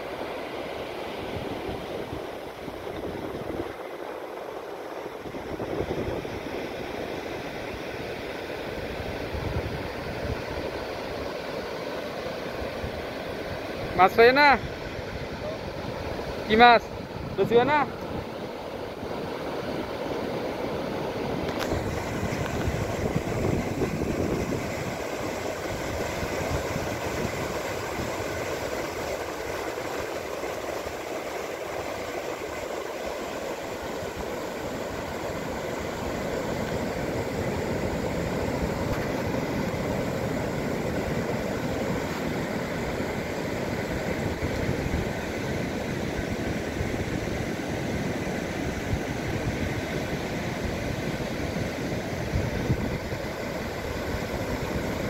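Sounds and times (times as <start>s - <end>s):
surf breaking on beach: 12.5s - 55.0s.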